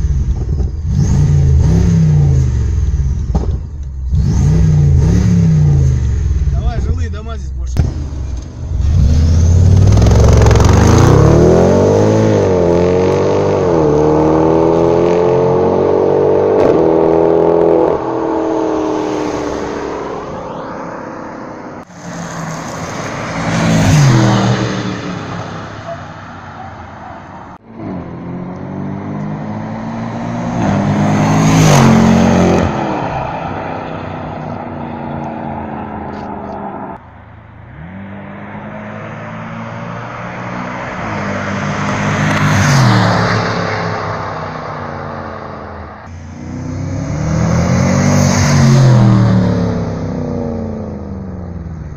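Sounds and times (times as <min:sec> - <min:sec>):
engine accelerating hard: 0:07.7 - 0:21.0
car driving past: 0:17.2 - 0:37.0.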